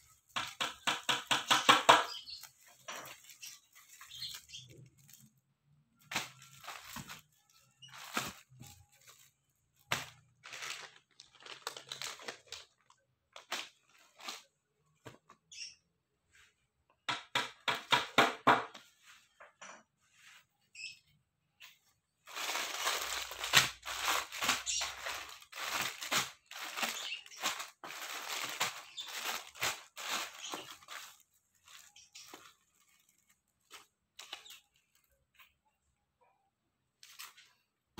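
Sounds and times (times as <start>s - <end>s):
plastic packets crinkling: 0.0s - 14.5s, 22.2s - 35.2s.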